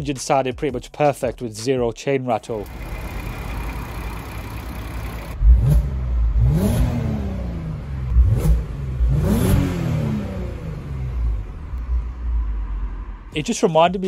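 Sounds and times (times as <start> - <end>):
car engine revving: 2.6 - 13.4.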